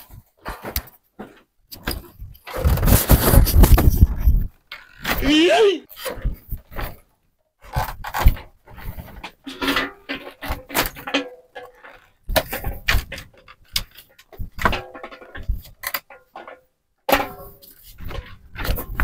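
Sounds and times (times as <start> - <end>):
metal basin clattering: 9.1 - 19.0.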